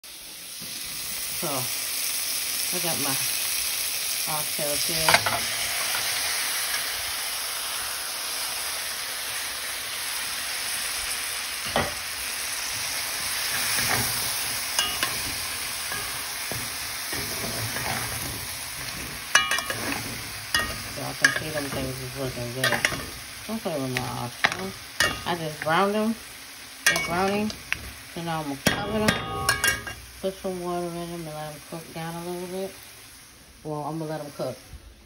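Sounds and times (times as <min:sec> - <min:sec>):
meat sizzling in a pan: 0:00.0 - 0:34.9
metal spoon scraping a pan: 0:05.0 - 0:06.9, 0:12.7 - 0:26.0, 0:26.8 - 0:30.1.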